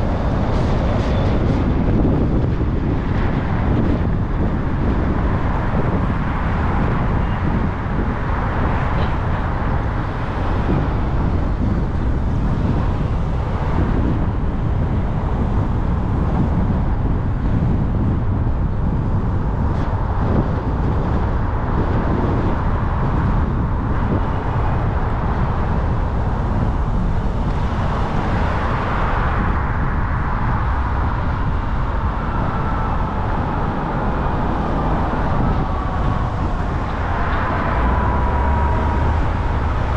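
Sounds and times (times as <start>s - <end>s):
car road noise: 0.0s - 39.9s.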